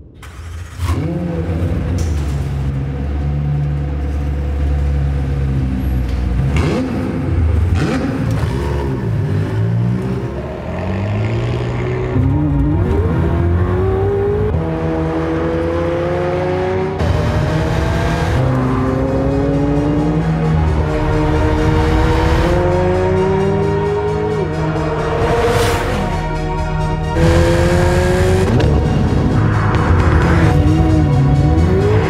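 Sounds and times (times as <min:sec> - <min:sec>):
sports car engine revving: 0:00.2 - 0:25.6, 0:27.1 - 0:29.1
car accelerating hard: 0:06.4 - 0:24.5.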